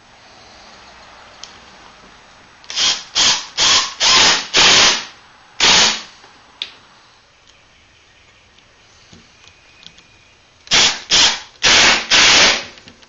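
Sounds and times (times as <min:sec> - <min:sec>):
impact driver driving screws: 0:02.7 - 0:05.0, 0:10.7 - 0:12.8.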